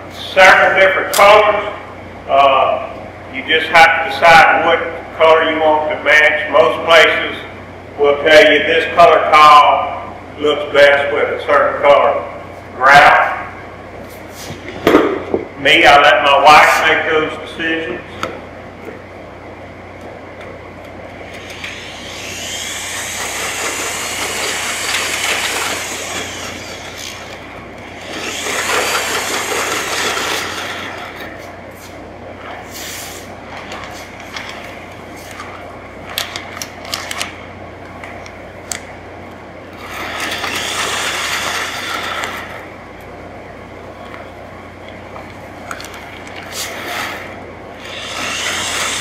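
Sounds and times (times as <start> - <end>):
electric drill mixing grout: 21.2 - 31.5, 39.8 - 42.7, 46.4 - 49.0.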